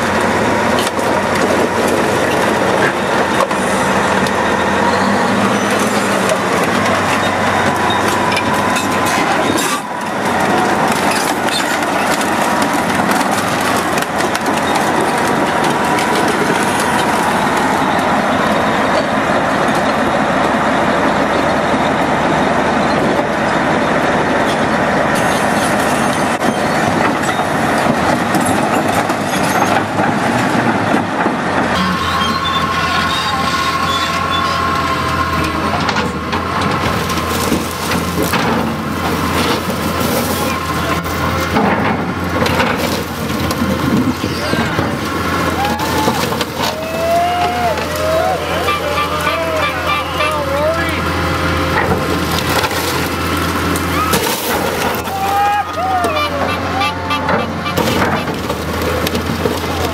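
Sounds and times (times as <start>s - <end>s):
bulldozer engine running: 0.0s - 59.9s
steel tracks clanking and squealing: 0.0s - 59.9s
car being crushed: 7.7s - 17.7s, 26.6s - 51.0s, 51.6s - 56.6s, 57.2s - 59.9s.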